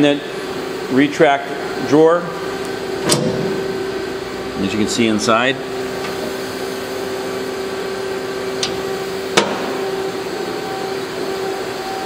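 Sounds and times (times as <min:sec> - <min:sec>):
machine hum with faint whine: 0:00.0 - 0:12.0.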